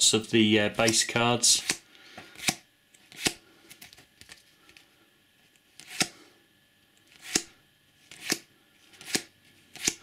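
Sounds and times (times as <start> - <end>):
trading cards flicking: 8.1 - 10.0.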